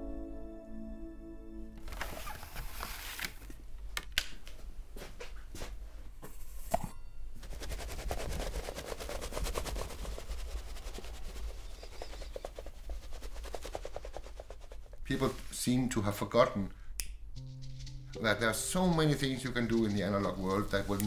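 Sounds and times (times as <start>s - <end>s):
fast even ticking: 17.4s - 21.0s.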